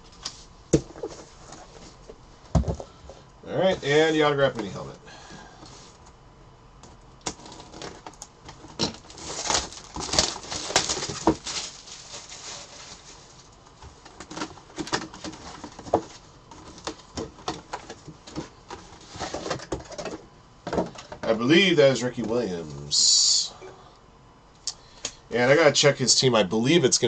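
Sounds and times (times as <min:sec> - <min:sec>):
cardboard box scraping and rustling: 0:09.1 - 0:13.3.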